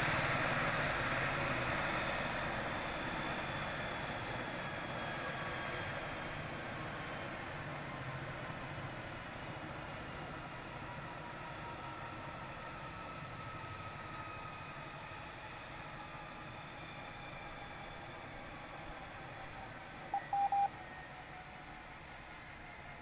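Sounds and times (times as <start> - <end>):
helicopter turbine whine: 0.0 - 23.0.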